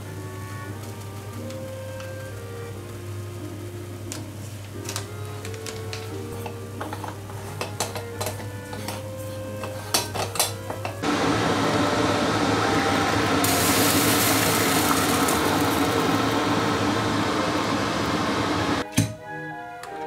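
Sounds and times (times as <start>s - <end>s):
moka pot hissing and sputtering: 6.0s - 18.8s
clicks and knocks of moka pot: 6.4s - 9.0s.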